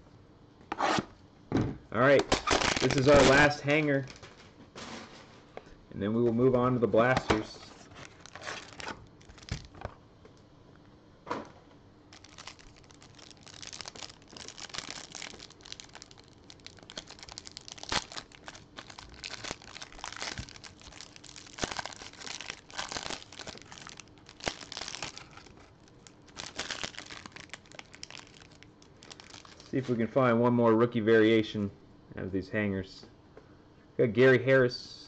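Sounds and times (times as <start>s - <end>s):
plastic wrapper crinkling and tearing: 2.2s - 4.3s, 7.7s - 9.9s, 12.1s - 30.0s.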